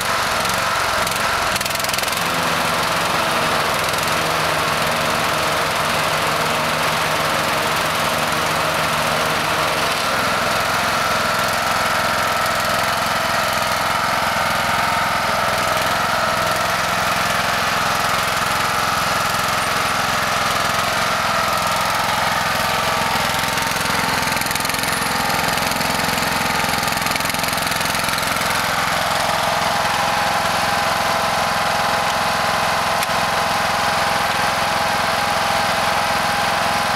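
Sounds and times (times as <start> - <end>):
riding lawn mower engine: 0.0 - 36.9.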